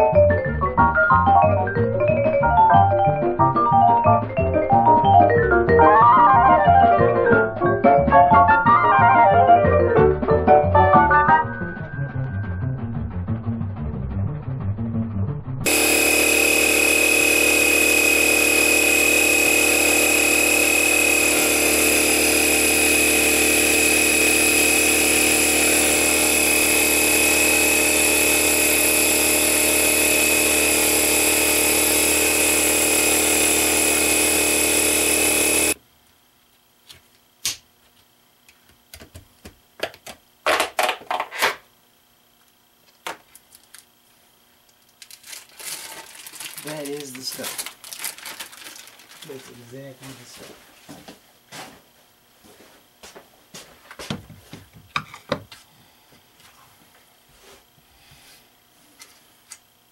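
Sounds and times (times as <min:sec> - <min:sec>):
electric air compressor running: 0:15.6 - 0:35.8, 0:45.1 - 0:50.2.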